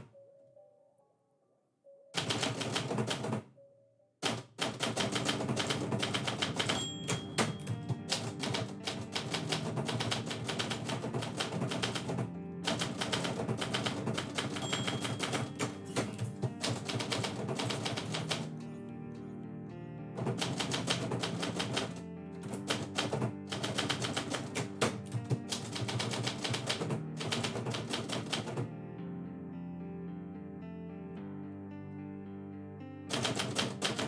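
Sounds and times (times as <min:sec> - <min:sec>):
manual typewriter keystrikes: 0:02.2 - 0:03.4, 0:04.2 - 0:18.7, 0:20.2 - 0:28.7, 0:33.1 - 0:34.0.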